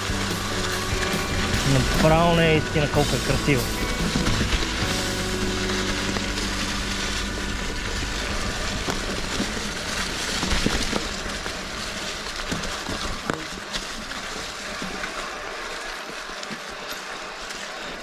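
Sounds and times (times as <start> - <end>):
low rumble: 0.0 - 14.2
bike tyres rushing on dirt: 0.0 - 18.0
bike knocks and rattles: 3.8 - 6.7, 8.2 - 13.8.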